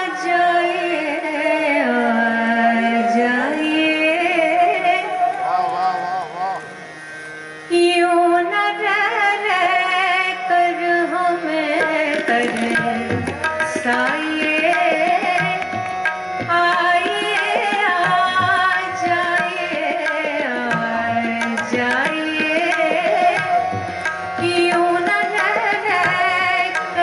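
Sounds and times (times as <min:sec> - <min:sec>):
woman singing: 0:00.0 - 0:05.3, 0:07.7 - 0:15.7, 0:16.4 - 0:23.7, 0:24.4 - 0:27.0
harmonium notes: 0:00.0 - 0:27.0
tabla strokes: 0:11.3 - 0:27.0.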